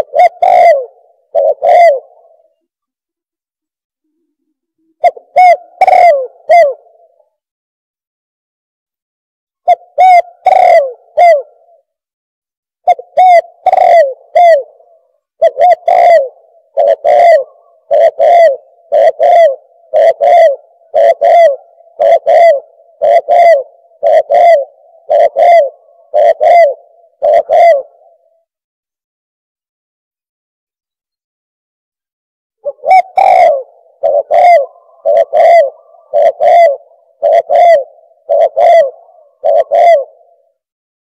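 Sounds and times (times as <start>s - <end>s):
dove cooing: 0.0s - 2.7s, 4.2s - 7.3s, 9.6s - 11.9s, 12.9s - 28.5s, 32.6s - 40.6s.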